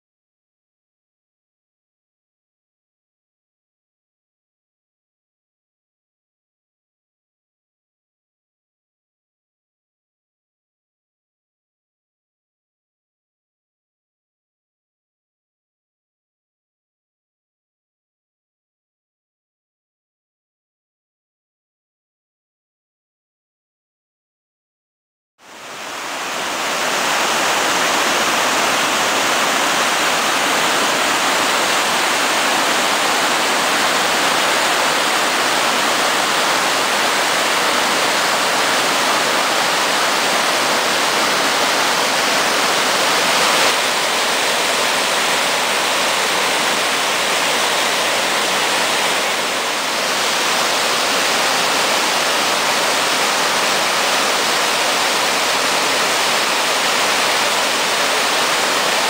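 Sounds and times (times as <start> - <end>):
waterfall rushing: 25.4 - 59.0.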